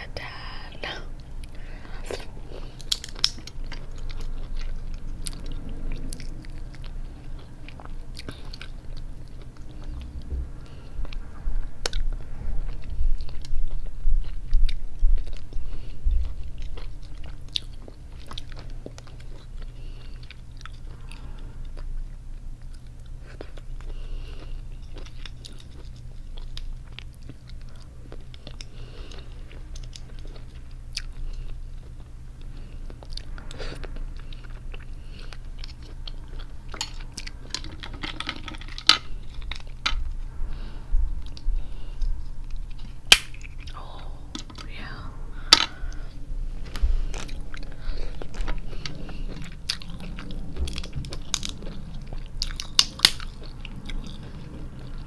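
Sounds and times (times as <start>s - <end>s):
chewing and biting: 1.2s - 40.1s, 41.2s - 44.7s, 46.6s - 55.0s
crab shell cracking: 2.8s - 4.1s, 43.1s - 43.7s, 50.8s - 51.6s, 52.5s - 53.4s.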